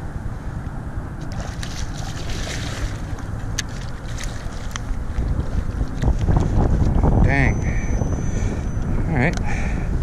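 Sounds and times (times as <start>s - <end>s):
wind buffeting microphone: 0.9s - 10.0s
water splashing: 1.2s - 6.1s.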